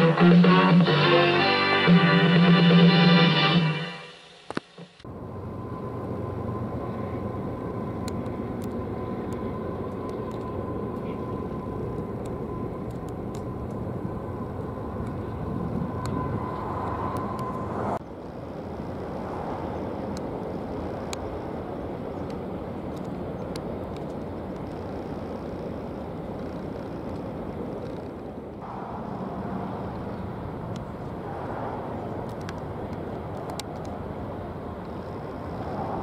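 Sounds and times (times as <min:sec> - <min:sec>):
faint high whine: 0:00.0 - 0:27.0
aircraft engine noise: 0:00.0 - 0:36.0.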